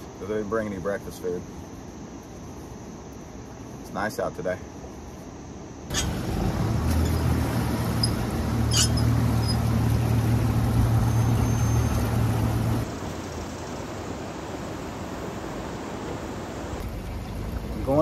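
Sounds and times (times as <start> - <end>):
wind: 0.0 - 18.0
outboard motor droning: 5.9 - 12.9, 16.8 - 18.0
water rushing past hull: 5.9 - 18.0.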